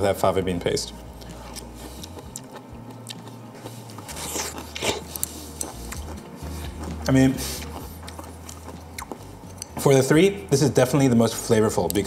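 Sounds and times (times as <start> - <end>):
person chewing cabbage: 1.0 - 9.8.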